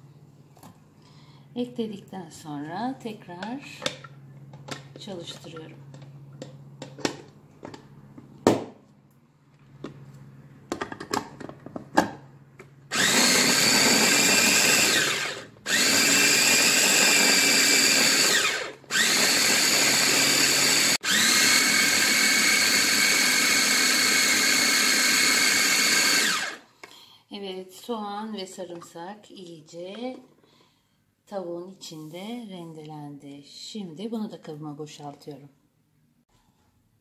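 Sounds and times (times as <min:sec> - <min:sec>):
food chopper motor whine: 0:12.9 - 0:26.7.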